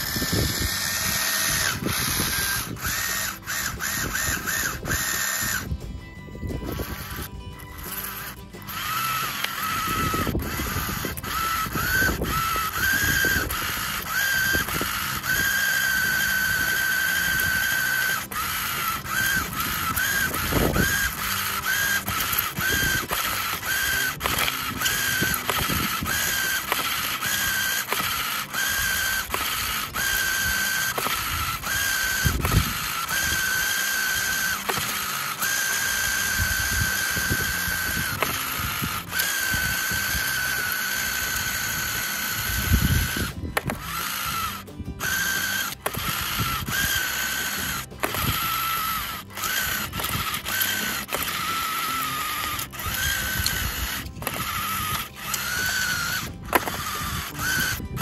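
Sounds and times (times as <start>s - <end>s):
gears clicking fast: 0.0s - 58.0s
small electric motor whining: 0.0s - 58.0s.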